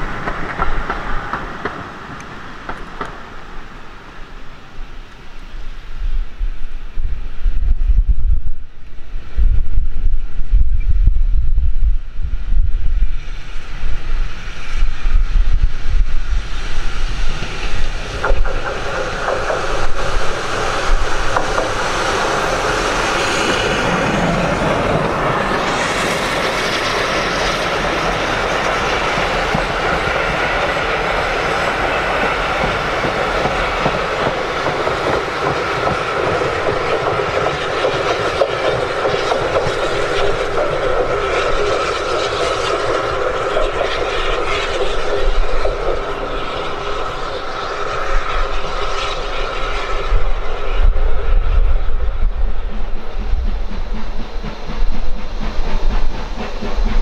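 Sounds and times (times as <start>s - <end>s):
train wheels clattering over rails: 0.0s - 3.9s, 15.5s - 57.0s
wind buffeting microphone: 5.7s - 57.0s.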